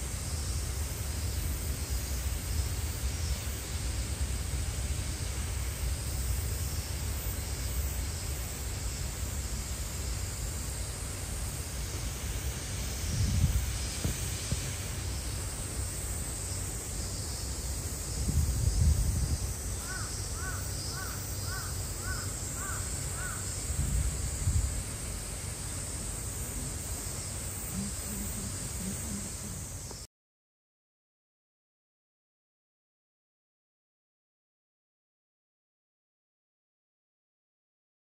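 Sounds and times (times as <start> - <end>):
even hiss: 0.0 - 30.1.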